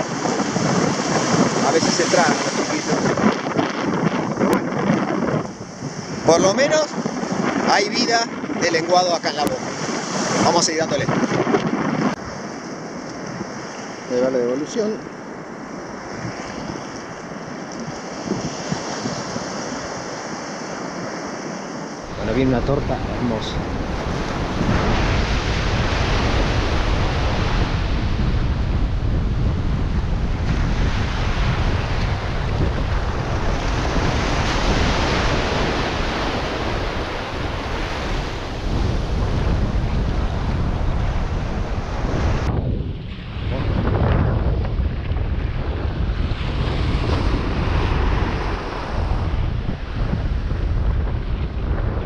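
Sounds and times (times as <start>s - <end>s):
ocean surf breaking on sand: 0.0s - 52.0s
wind noise on microphone: 0.0s - 52.0s
small waves washing: 9.5s - 11.4s, 30.4s - 42.5s.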